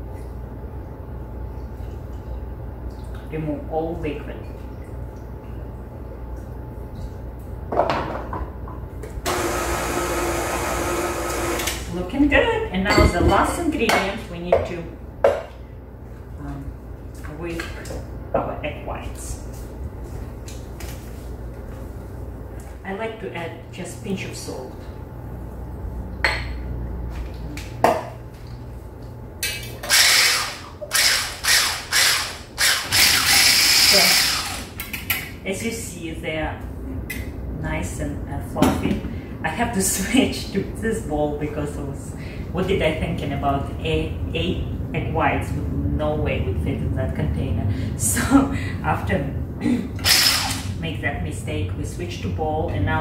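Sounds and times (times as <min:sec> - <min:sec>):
stand mixer motor whirring: 0:09.3 - 0:11.8, 0:29.9 - 0:34.7
immersion blender whipping: 0:09.3 - 0:11.9, 0:29.8 - 0:34.8, 0:50.0 - 0:50.7.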